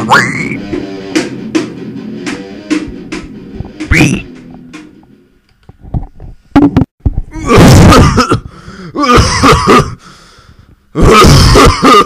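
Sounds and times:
man retching and clearing throat: 0:06.6 - 0:10.0, 0:10.9 - 0:12.0.

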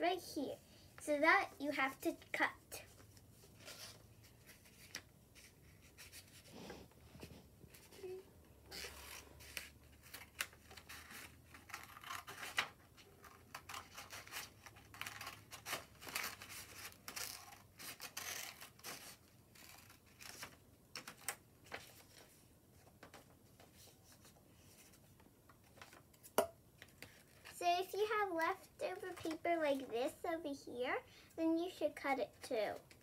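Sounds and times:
paper rustling: 0:02.8 - 0:06.5.

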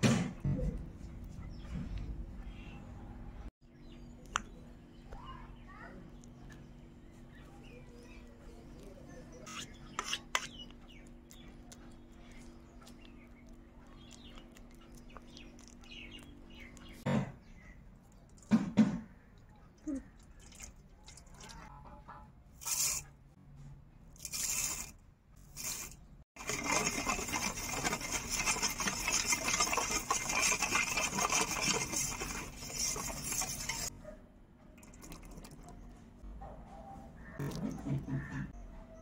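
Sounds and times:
spoon stirring milk in metal bowl: 0:08.0 - 0:17.0, 0:25.6 - 0:33.9.

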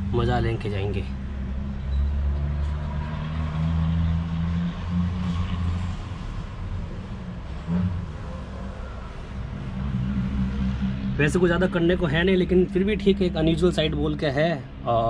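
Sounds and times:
low rumble: 0:07.9 - 0:14.2.

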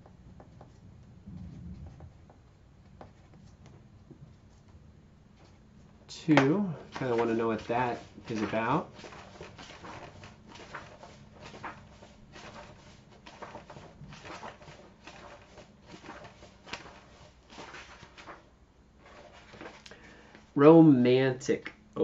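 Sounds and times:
book pages flipping: 0:05.4 - 0:20.5.

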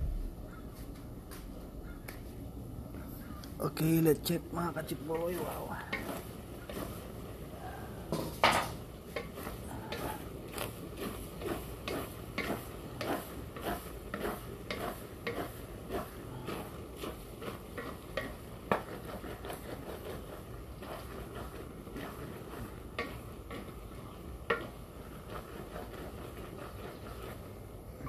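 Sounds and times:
low frying sizzle: 0:00.0 - 0:28.0
spatula scraping a wok: 0:04.9 - 0:28.0
spatula knocking against pan: 0:24.4 - 0:24.8.

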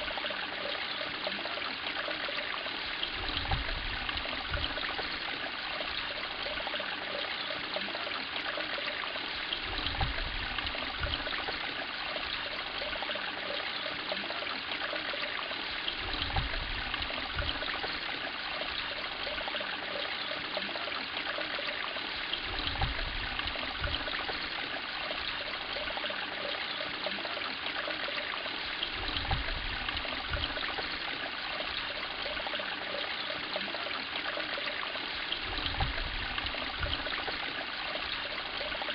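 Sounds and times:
water trickling in a pond: 0:00.0 - 0:38.9.

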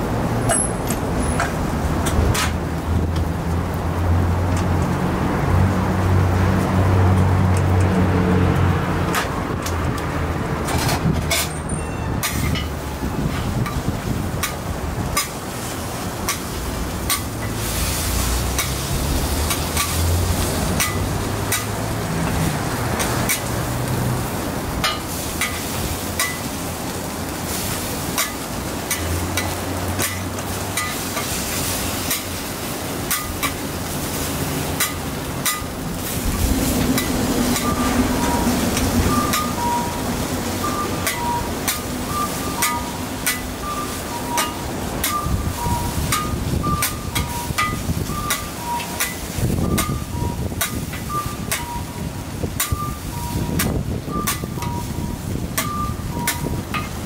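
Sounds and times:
metal spatulas scraping on griddle: 0:10.7 - 0:23.6, 0:24.8 - 0:26.5, 0:27.5 - 0:32.4, 0:33.0 - 0:36.4
food sizzling on griddle: 0:12.3 - 0:57.0.

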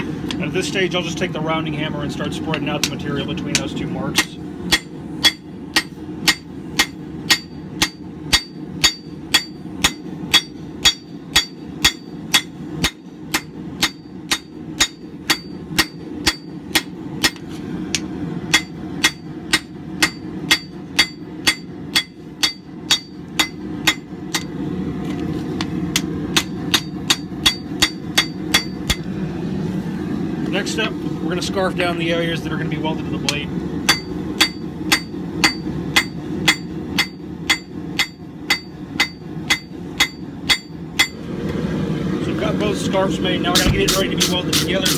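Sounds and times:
steady low hum: 0:00.0 - 0:44.9
hammer striking hot steel on anvil: 0:02.5 - 0:24.6, 0:25.5 - 0:29.2, 0:33.2 - 0:41.3, 0:43.5 - 0:44.9.

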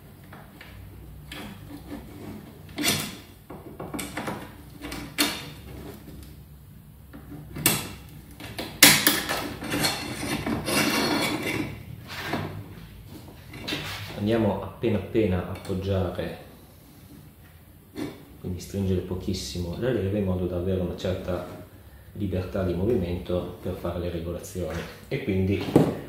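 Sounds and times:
sharp clicks and knocks: 0:00.2 - 0:06.3
scraping rub on handlebar: 0:01.4 - 0:02.8.

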